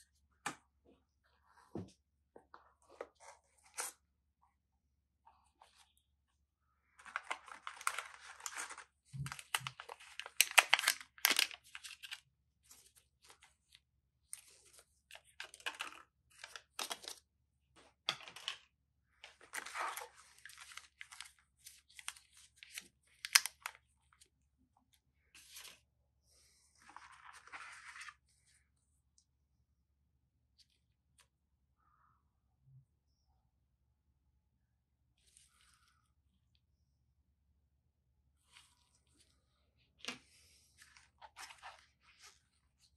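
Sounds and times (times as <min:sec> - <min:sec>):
cardboard inserts rustling: 0:07.0 - 0:12.2.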